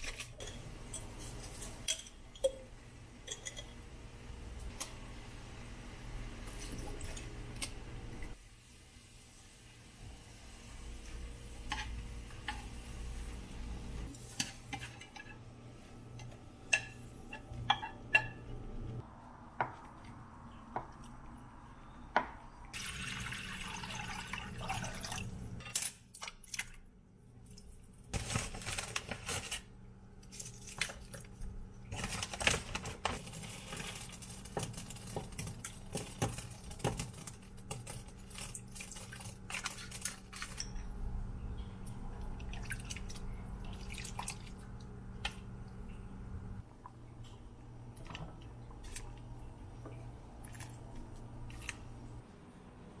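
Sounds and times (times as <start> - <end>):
utensils clinking on a pot: 0.0 - 3.8, 31.9 - 41.0
liquid pouring and splashing: 22.7 - 25.4, 33.4 - 40.6, 42.2 - 44.7.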